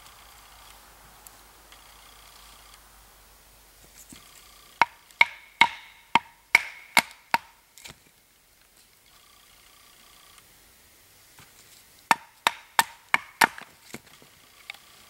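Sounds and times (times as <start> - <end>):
wooden baton striking knife spine: 4.8 - 7.5.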